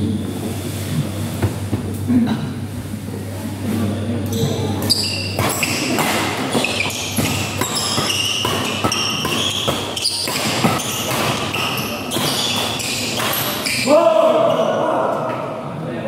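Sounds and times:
shoes squeaking on court: 4.3s - 13.9s
rackets striking shuttlecock: 5.4s - 13.9s.

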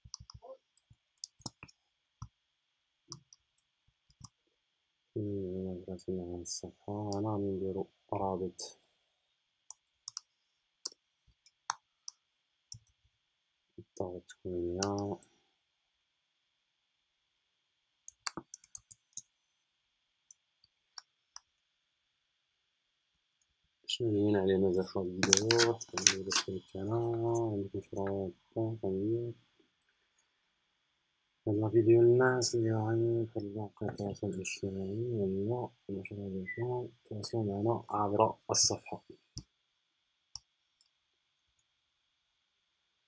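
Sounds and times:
mouse and keyboard clicking: 25.2s - 26.5s.

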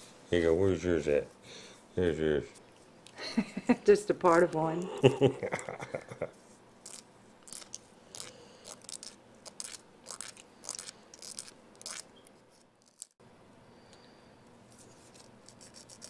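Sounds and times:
nail file rasping on toenails: 6.8s - 12.1s, 15.1s - 16.0s.

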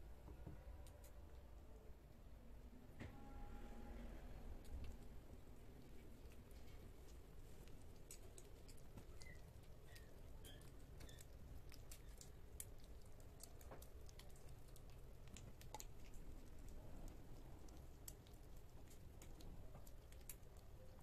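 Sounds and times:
kittens lapping and chewing: 4.5s - 21.0s.

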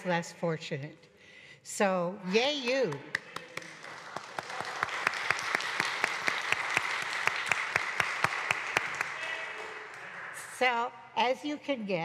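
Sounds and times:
crowd applauding: 3.1s - 10.6s.

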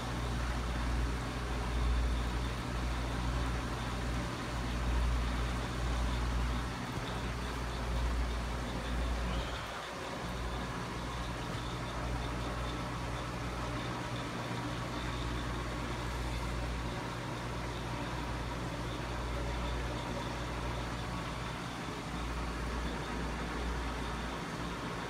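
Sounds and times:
aquarium pump humming: 0.0s - 25.0s.

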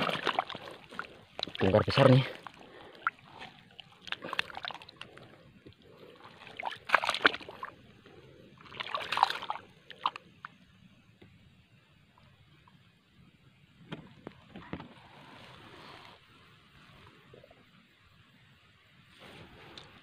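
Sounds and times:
hands splashing in muddy water: 0.0s - 5.3s, 6.2s - 7.8s, 8.6s - 10.2s.

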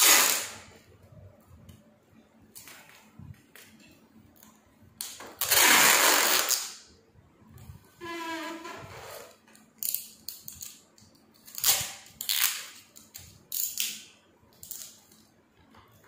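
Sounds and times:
adhesive tape ripping off roll: 0.0s - 0.7s, 5.0s - 6.8s, 11.5s - 15.0s.

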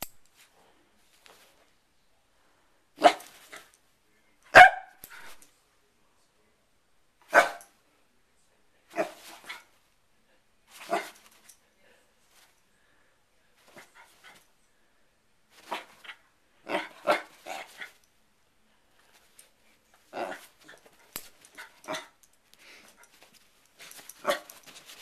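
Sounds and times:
dog barking: 3.0s - 3.3s, 4.5s - 5.0s, 7.3s - 7.7s, 16.7s - 17.7s.

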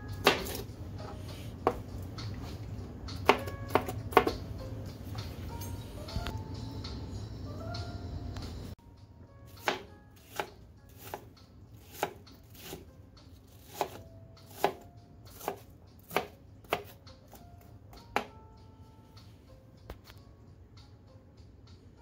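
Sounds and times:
knife chopping on cutting board: 0.2s - 0.6s, 3.2s - 4.4s, 9.6s - 12.8s, 13.5s - 17.4s.

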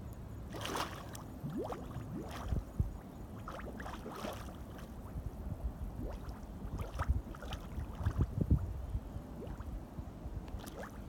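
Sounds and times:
mud bubbling and plopping: 0.5s - 5.3s, 5.9s - 8.8s, 9.4s - 9.8s, 10.5s - 11.0s.

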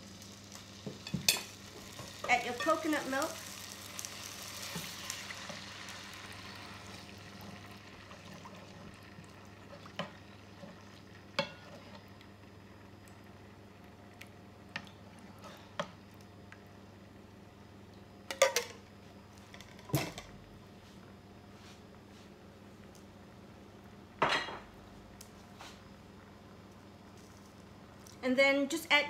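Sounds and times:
faint sizzle: 0.0s - 29.0s
spoon stirring in a frying pan: 0.5s - 12.3s.

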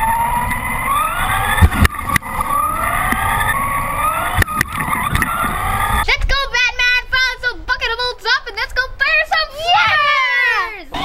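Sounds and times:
electric motor whine: 0.0s - 6.0s.

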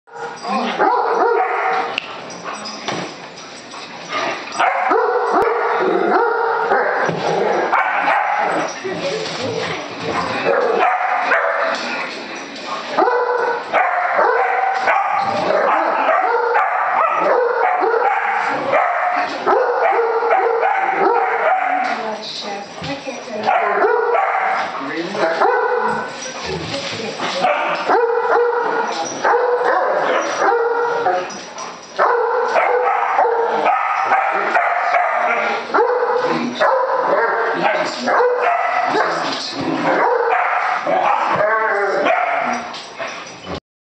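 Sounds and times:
dogs barking and yipping: 0.1s - 22.2s, 23.2s - 43.6s.

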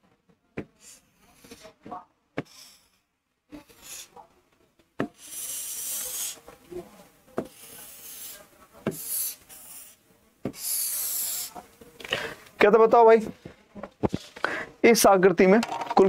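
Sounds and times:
pen scratching on screen: 5.0s - 6.5s, 7.4s - 11.6s.

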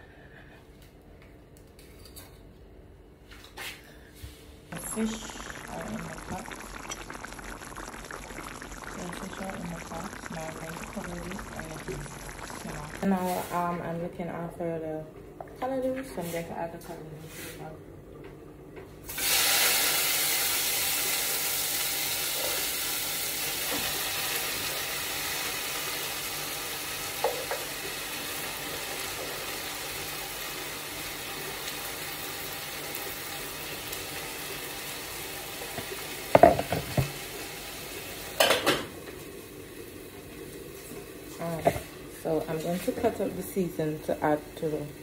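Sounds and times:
greens sizzling in hot pot: 4.8s - 13.7s, 19.1s - 45.0s
spoon knocking against pot: 36.4s - 37.1s.

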